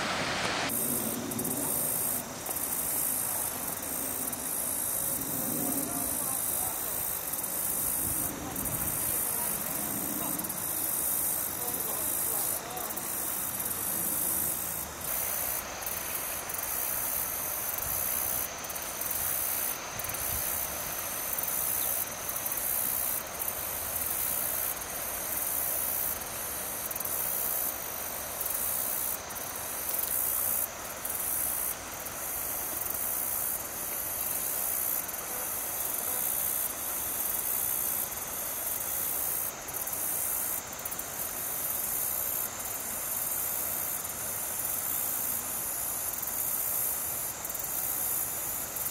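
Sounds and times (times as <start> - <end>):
soft steady rush: 0.0 - 16.5
insects trilling: 0.0 - 48.9.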